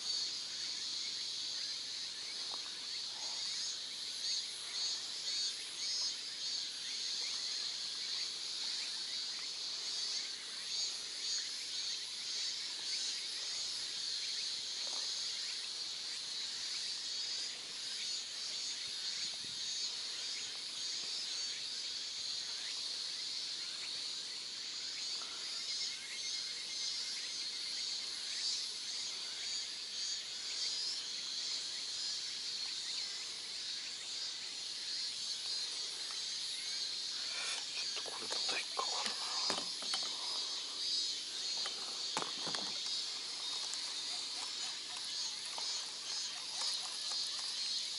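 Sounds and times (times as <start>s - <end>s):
high-pitched insect chorus: 0.0s - 47.9s.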